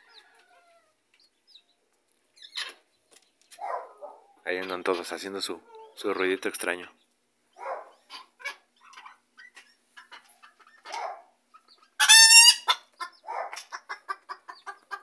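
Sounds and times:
chickens clucking: 0.0s - 15.0s
hen high-pitched squawk: 12.0s - 13.9s.

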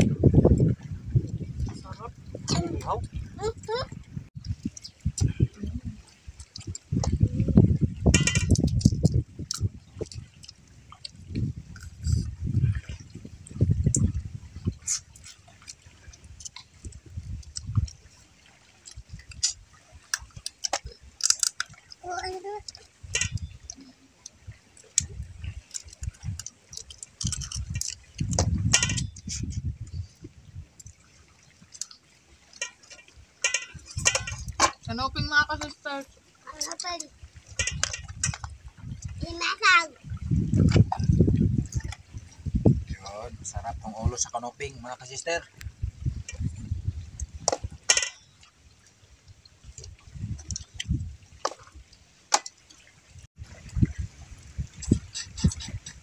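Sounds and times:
eating clicks and crunches: 8.4s - 11.2s, 18.8s - 22.0s, 22.6s - 29.4s, 31.7s - 32.0s.

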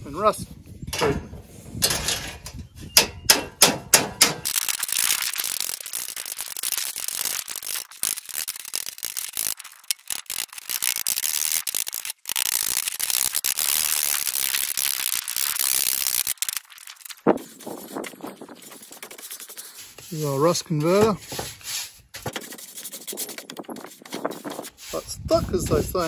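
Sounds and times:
hammer striking metal: 3.0s - 4.5s.

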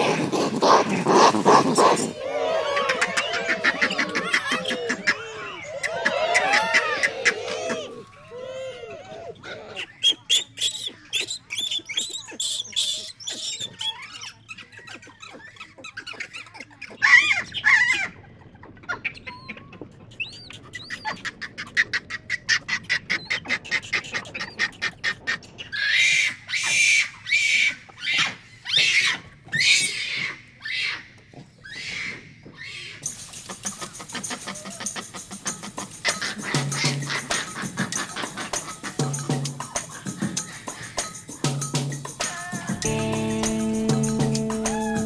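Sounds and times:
monkeys chirping and squeaking: 0.0s - 2.1s, 9.0s - 22.0s, 31.6s - 43.0s
monkeys screaming: 0.0s - 43.2s.

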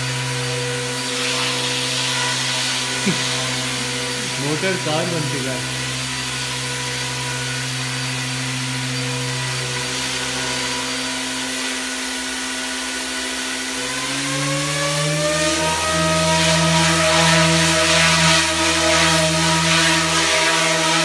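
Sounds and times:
rc helicopter rotors whining: 0.0s - 12.5s.

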